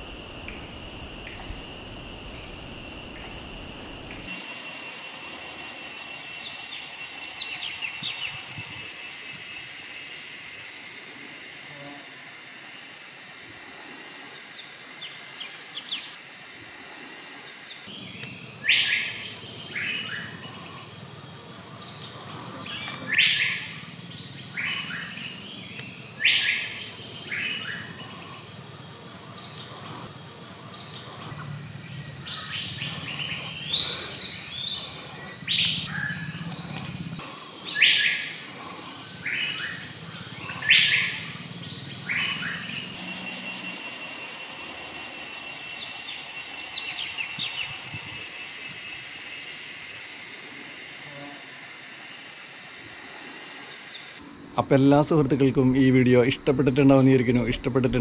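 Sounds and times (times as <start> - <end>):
high pulsing insect trill: 0.0 - 54.2.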